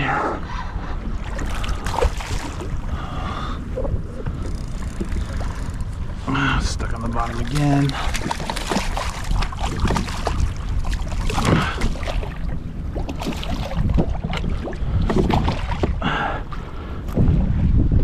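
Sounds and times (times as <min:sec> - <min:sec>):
low wind rumble: 0:00.0 - 0:18.0
fish thrashing and splashing: 0:01.2 - 0:02.8, 0:07.2 - 0:16.0.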